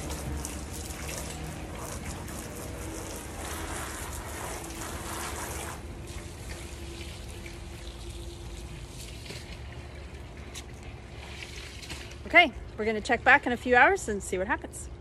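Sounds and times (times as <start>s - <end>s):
garden hose spraying onto fabric: 0.0s - 9.7s
quiet water sounds: 0.0s - 15.0s.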